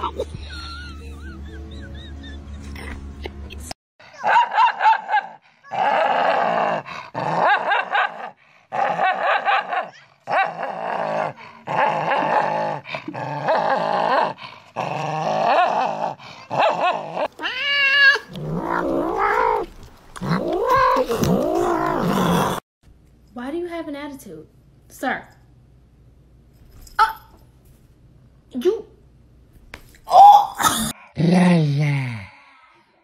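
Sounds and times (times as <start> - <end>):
small dog snarling and growling: 5.7 - 22.6
cat growling yowls: 16.5 - 22.6.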